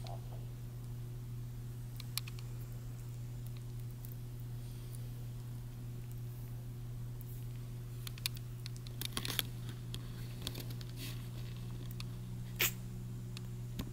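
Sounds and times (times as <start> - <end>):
steady low hum: 0.0 - 13.9
kittens rustling on blanket: 9.4 - 11.8.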